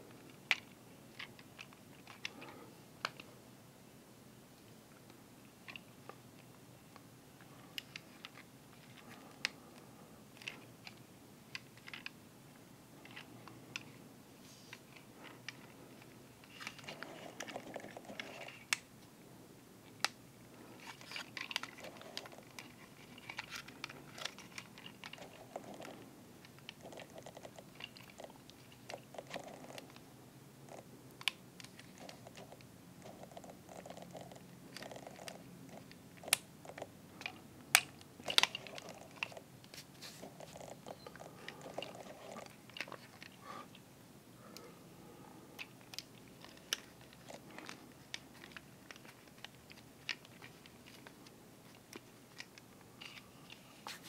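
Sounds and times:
plastic parts clicking: 7.7s - 12.2s, 20.8s - 30.0s, 34.7s - 39.8s, 45.6s - 53.6s
soft plastic rubbing: 13.0s - 18.8s, 31.6s - 43.8s, 44.4s - 54.0s.

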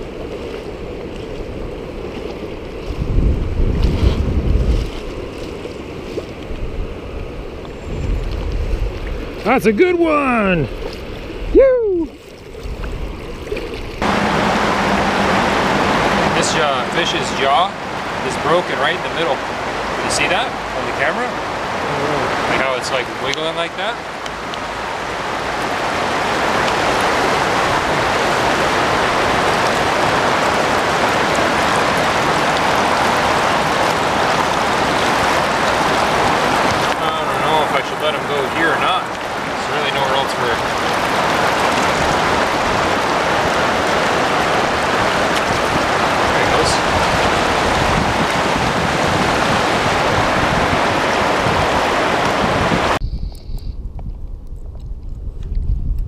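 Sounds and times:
river water rushing over rapids: 8.9s - 53.0s.

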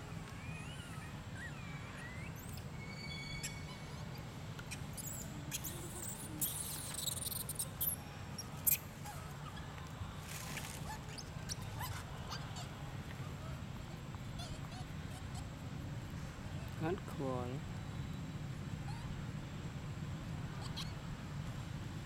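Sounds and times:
steady low hum: 0.0s - 22.0s
monkey squeaks and chirps: 0.6s - 9.6s, 10.8s - 12.4s, 20.6s - 21.0s
rustling in leaf litter: 10.2s - 11.1s.

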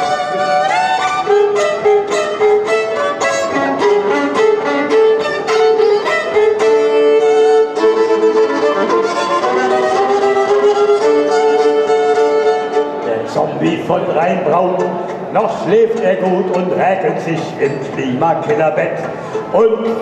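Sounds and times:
violin playing quick notes: 0.0s - 13.2s.

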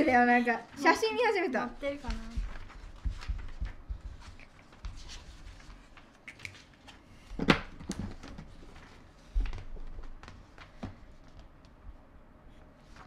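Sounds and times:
pens scratching on paper: 1.8s - 6.6s.

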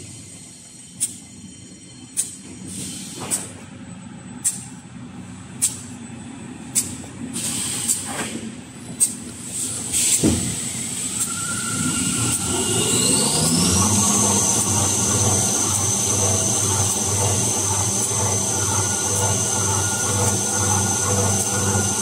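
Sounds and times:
machine whine: 9.5s - 22.0s
steady machine hum: 11.4s - 22.0s.

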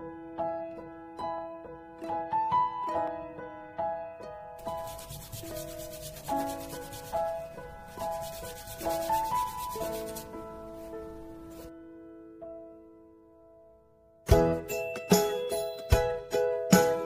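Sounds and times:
plucked background music: 4.6s - 11.7s, 14.3s - 17.0s
sanding on sandpaper: 4.6s - 11.7s.

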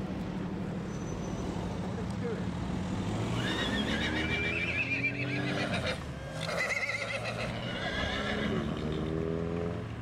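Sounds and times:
pony whinnying: 3.4s - 9.2s.

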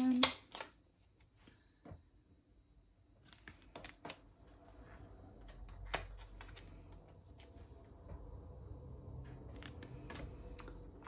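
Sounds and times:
cards clicking and snapping: 9.4s - 11.0s.

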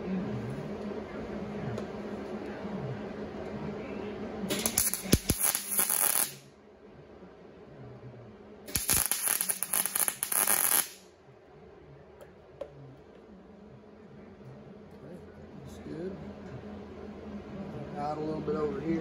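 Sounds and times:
welding arc crackling: 4.5s - 6.5s, 8.7s - 11.0s.

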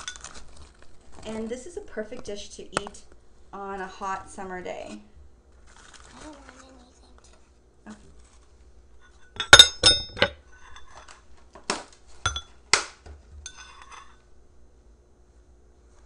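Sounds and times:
metal spoon clinking on ceramic bowl: 9.3s - 10.4s, 12.3s - 12.5s, 13.5s - 14.1s.

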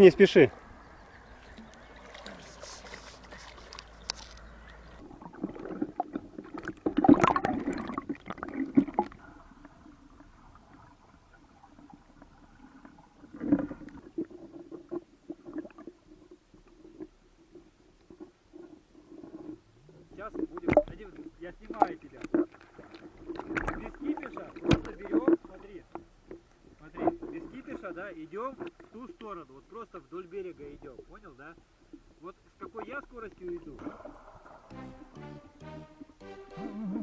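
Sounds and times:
water splashes: 0.0s - 17.1s, 20.1s - 32.0s
faint outdoor hiss: 0.0s - 37.0s
muffled underwater sloshing: 0.6s - 34.7s.

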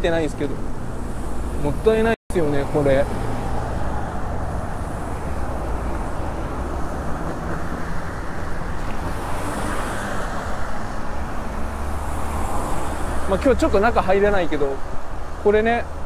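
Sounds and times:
road traffic noise: 0.0s - 16.0s
wind over microphone: 3.0s - 13.3s.

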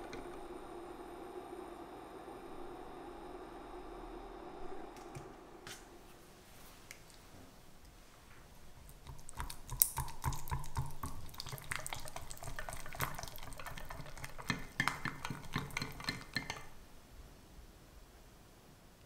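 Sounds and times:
whisk squelching in cream: 8.6s - 16.8s
whisk clicking against pan: 8.8s - 16.8s.

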